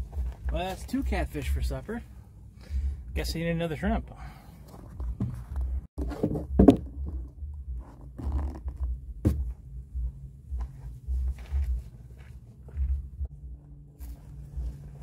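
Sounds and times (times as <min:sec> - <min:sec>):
low rumble: 0:04.8 - 0:15.0.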